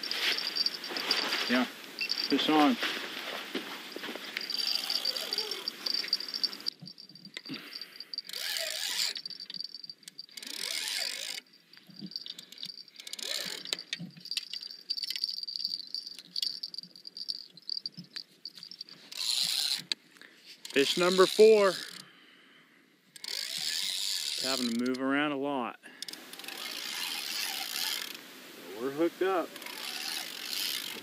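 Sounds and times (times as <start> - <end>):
fishing rod handling noise: 0.0 - 7.7, 8.3 - 22.0
fishing reel cranking: 4.4 - 20.0, 20.6 - 22.0, 23.1 - 25.0, 26.0 - 28.2, 29.5 - 31.0.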